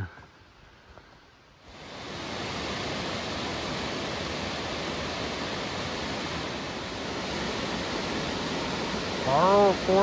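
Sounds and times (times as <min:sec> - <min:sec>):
waterfall rushing: 0:01.6 - 0:10.0.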